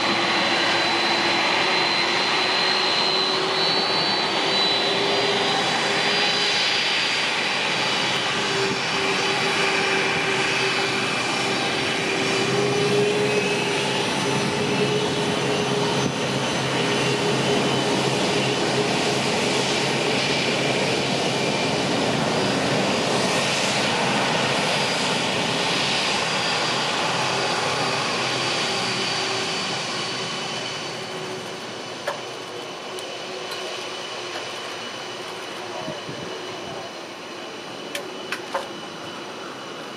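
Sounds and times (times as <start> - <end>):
jet engines running: 0.0 - 39.9.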